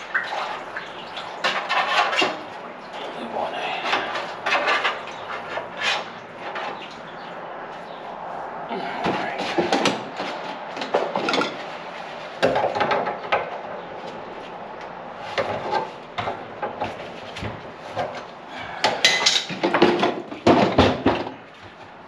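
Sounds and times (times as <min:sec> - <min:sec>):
tools clattering and knocking: 0:09.0 - 0:11.7, 0:12.4 - 0:13.6, 0:15.4 - 0:21.4.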